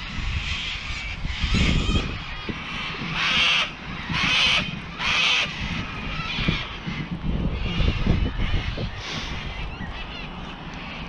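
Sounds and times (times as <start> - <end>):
wind rumble on microphone: 0.0 - 11.0
bird giving harsh calls: 0.3 - 11.0.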